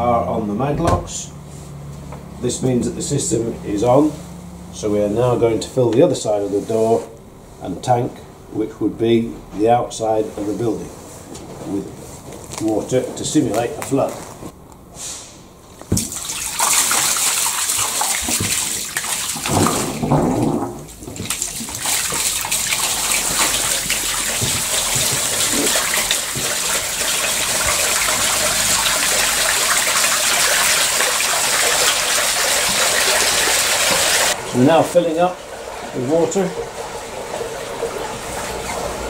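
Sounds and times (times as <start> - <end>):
water gushing onto concrete: 16.0 - 39.0.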